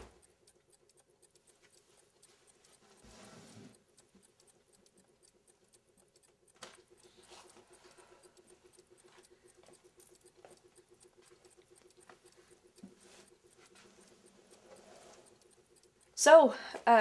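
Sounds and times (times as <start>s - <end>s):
clocks ticking: 0.0s - 17.0s.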